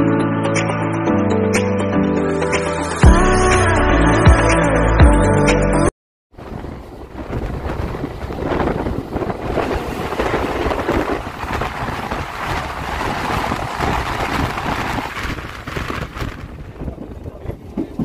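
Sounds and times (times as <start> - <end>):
wind at open door: 6.3 - 18.0
passing train roar: 6.4 - 18.0
train running noise: 6.4 - 18.0.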